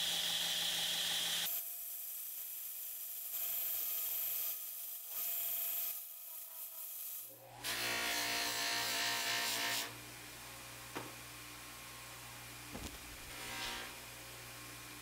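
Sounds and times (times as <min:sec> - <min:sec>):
grinder motor hum: 0:12.8 - 0:14.0.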